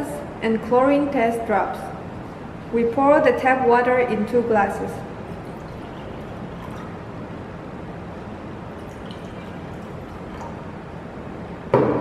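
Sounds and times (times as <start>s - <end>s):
water pouring into a glass: 5.1s - 7.2s, 8.6s - 11.0s.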